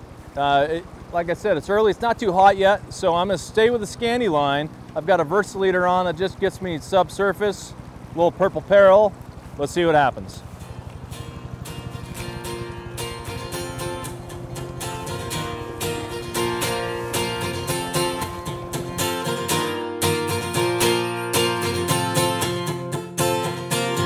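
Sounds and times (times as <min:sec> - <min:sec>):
strummed acoustic guitar: 0:10.4 - 0:24.0.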